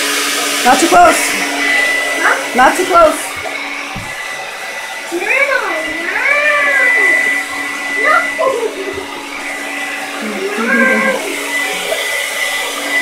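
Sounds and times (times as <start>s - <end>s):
hair dryer blowing: 0.0s - 13.0s
small dog whining: 10.2s - 11.8s.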